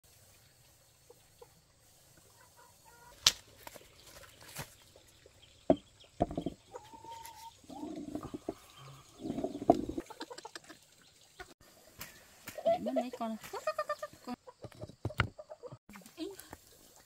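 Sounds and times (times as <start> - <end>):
chickens clucking: 0.9 - 3.3, 5.7 - 15.8
sharp knocks: 5.7 - 6.6.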